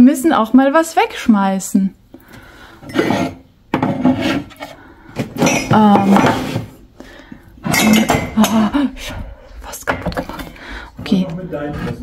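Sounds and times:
mugs clinking together: 0:07.6 - 0:08.7.

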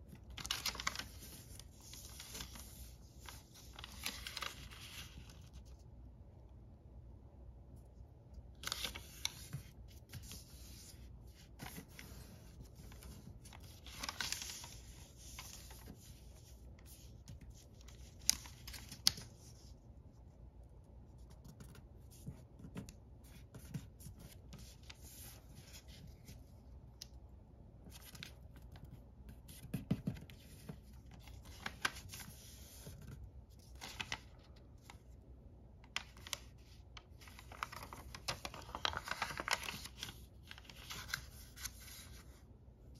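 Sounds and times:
paper crackles: 0:00.0 - 0:05.8, 0:08.5 - 0:19.8, 0:27.8 - 0:35.2, 0:35.8 - 0:42.4
paper rustling and crinkling: 0:00.0 - 0:05.9, 0:08.4 - 0:19.8, 0:27.8 - 0:35.2, 0:35.8 - 0:42.5.

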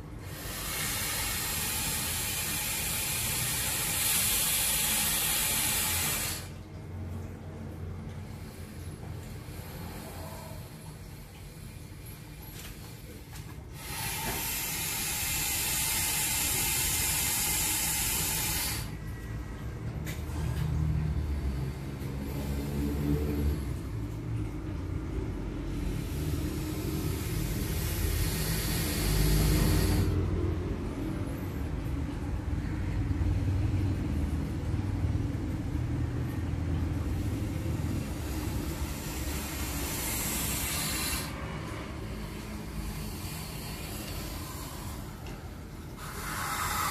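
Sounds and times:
snake hissing: 0:00.0 - 0:06.6, 0:08.3 - 0:12.2, 0:12.9 - 0:19.0, 0:21.0 - 0:23.9, 0:25.5 - 0:31.4, 0:36.9 - 0:46.9.

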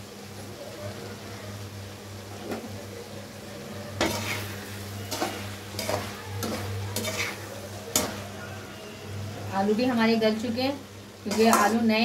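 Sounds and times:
food frying softly: 0:00.0 - 0:12.0
metal spatula scraping pan: 0:04.0 - 0:08.2, 0:11.3 - 0:11.9.

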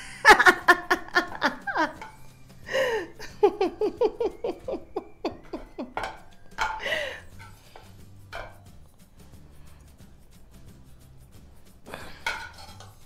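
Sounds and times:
woman giggling: 0:00.0 - 0:02.0, 0:02.7 - 0:06.1
metal spatula scraping wok: 0:01.9 - 0:02.6, 0:06.0 - 0:13.0.

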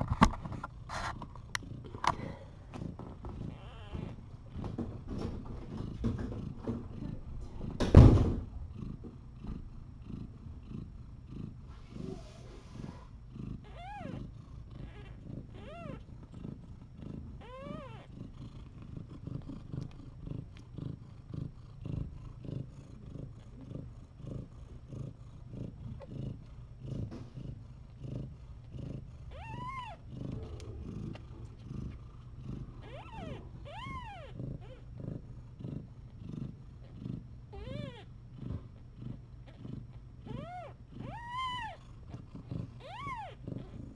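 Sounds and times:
cat purring: 0:00.0 - 0:43.9
kitten squeaks: 0:03.5 - 0:04.2, 0:13.6 - 0:14.2, 0:14.8 - 0:16.0, 0:17.4 - 0:18.1, 0:29.3 - 0:30.0, 0:32.8 - 0:34.8, 0:37.5 - 0:38.1, 0:40.3 - 0:41.8, 0:42.8 - 0:43.8
loud thump: 0:07.8 - 0:08.5.

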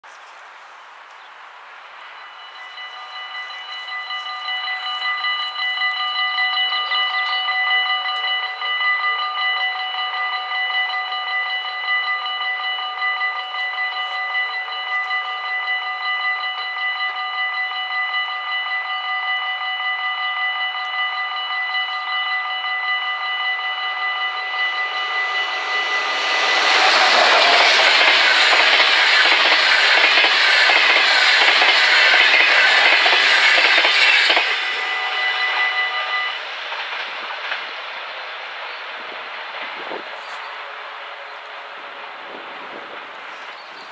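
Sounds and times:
level crossing bells ringing: 0:02.2 - 0:27.2
train wheels on rails: 0:23.2 - 0:43.9.

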